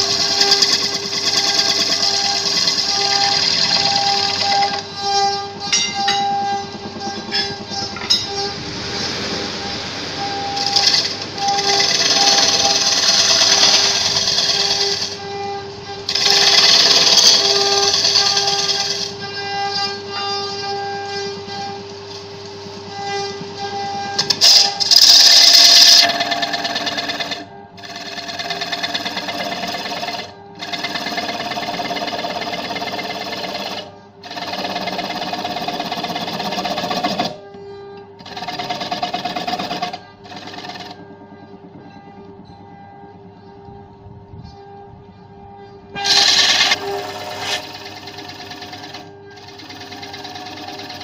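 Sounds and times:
turning tool cutting wood: 0.0 - 5.7, 10.2 - 15.2, 16.1 - 19.2, 24.2 - 37.4, 38.2 - 41.0, 46.0 - 51.0
wood lathe running: 0.0 - 15.3, 16.1 - 20.6, 21.8 - 23.0, 24.2 - 37.5, 38.2 - 41.3, 46.0 - 51.0.

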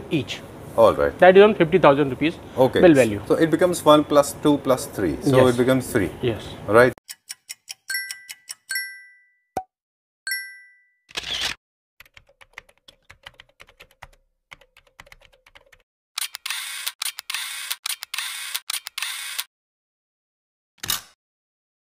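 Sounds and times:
ringing ding: 7.9 - 9.4, 10.3 - 11.0.

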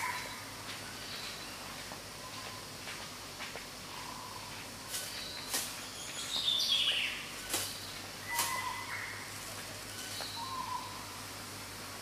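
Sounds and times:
whistled bird calls: 10.1 - 11.0.

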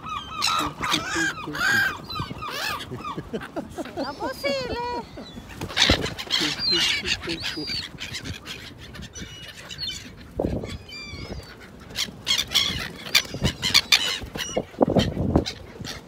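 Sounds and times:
gulls calling: 0.0 - 16.0
wings flapping: 5.4 - 8.7.

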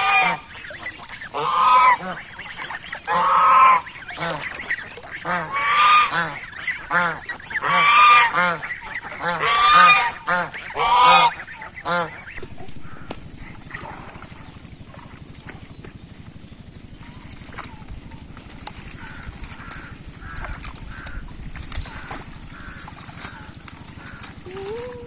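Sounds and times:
geese honking: 0.0 - 13.9, 18.7 - 24.8.

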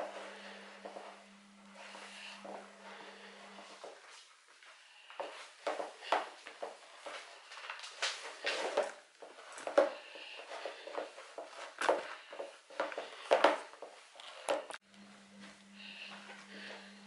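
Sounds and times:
steady low hum: 0.0 - 4.1, 14.8 - 17.0.

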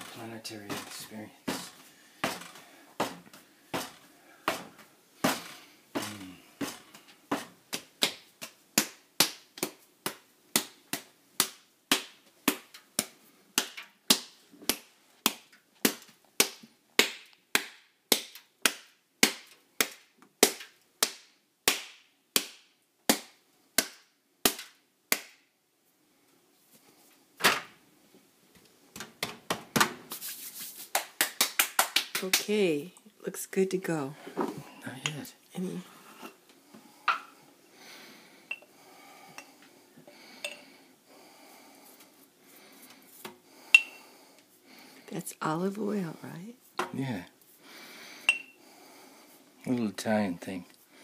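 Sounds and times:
hands slapping dough: 0.0 - 25.5, 28.9 - 32.6.

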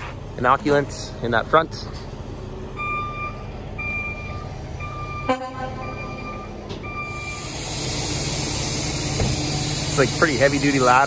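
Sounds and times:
idling engine rumble: 0.0 - 11.0
vehicle backup alarm beeping: 2.7 - 11.0
vehicle horn honk: 5.2 - 6.0
steady hiss: 7.4 - 11.0.

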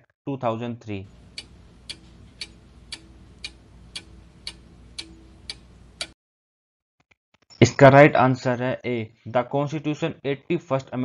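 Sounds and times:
clock ticking: 1.1 - 6.2.

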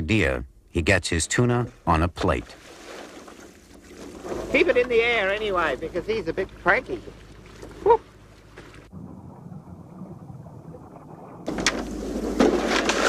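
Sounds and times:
wind and water around boat: 1.3 - 13.0.

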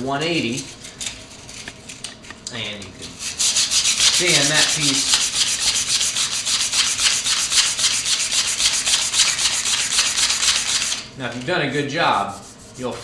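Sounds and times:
wood rubbed on sandpaper: 3.2 - 11.0, 12.1 - 13.0.

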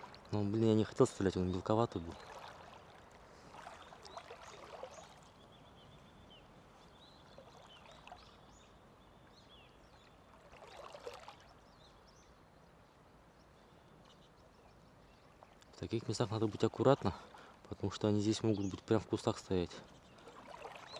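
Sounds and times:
person wading through water: 0.0 - 6.0, 6.8 - 11.7, 15.3 - 17.8, 19.8 - 20.9.

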